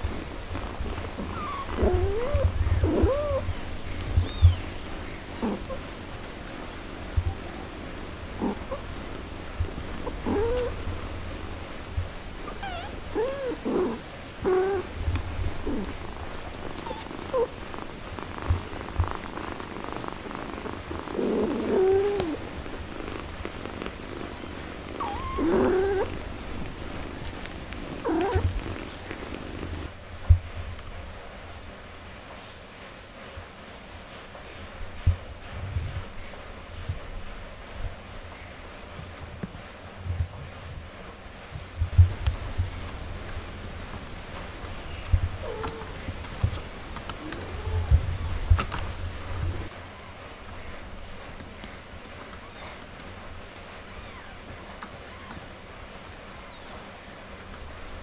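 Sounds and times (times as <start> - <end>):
cat purring: 0.0 - 30.0, 41.9 - 49.7
kittens mewing: 0.6 - 6.1, 7.2 - 9.0, 10.0 - 10.9, 12.4 - 29.9, 42.0 - 49.7
cat mewing: 1.2 - 3.5, 4.1 - 4.7, 12.5 - 14.9, 16.8 - 17.6, 25.0 - 27.1, 27.8 - 29.9, 45.0 - 46.2.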